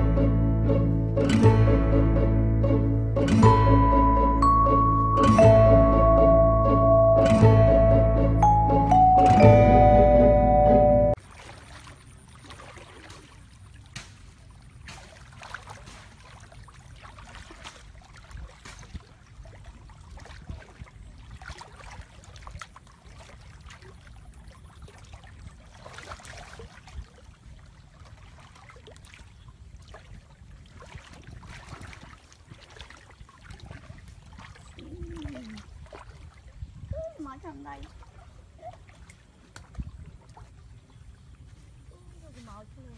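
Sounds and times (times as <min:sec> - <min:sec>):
splashing steps in water: 0:11.2 - 0:36.6.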